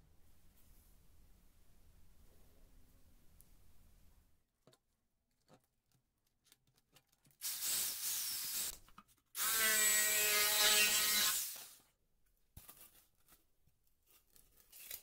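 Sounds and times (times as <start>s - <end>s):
jigsaw cutting foam: 7.4s - 8.8s, 9.4s - 11.8s.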